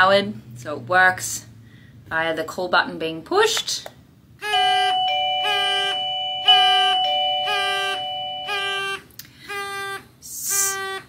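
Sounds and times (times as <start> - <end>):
electronic doorbell chime: 4.4 - 8.9.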